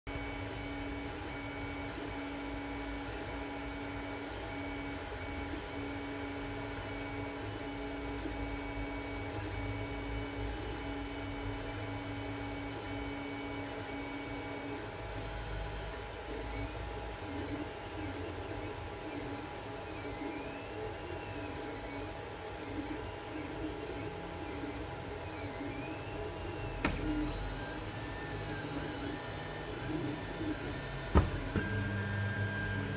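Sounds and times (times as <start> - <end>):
printer whining tone: 0.1 - 32.9
fans humming: 8.8 - 32.9.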